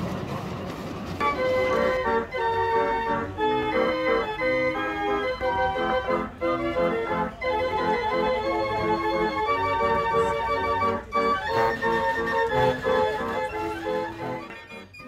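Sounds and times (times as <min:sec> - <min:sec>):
fair organ playing a tune: 0:01.2 - 0:15.0.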